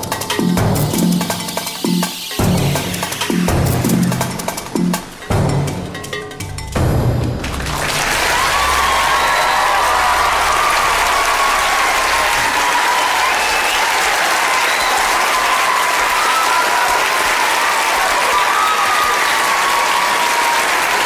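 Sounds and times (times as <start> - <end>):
audience applauding: 7.4 - 21.0.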